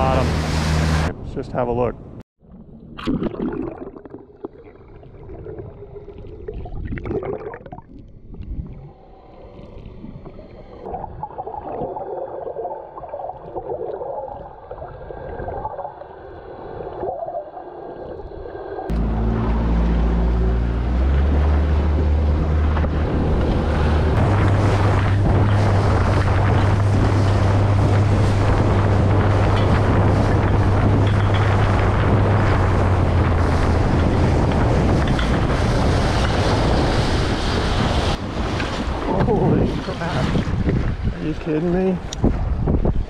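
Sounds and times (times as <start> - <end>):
outboard motor running: 0.0 - 1.1, 18.9 - 37.6
muffled underwater sloshing: 2.4 - 43.0
wind on microphone: 18.2 - 43.0.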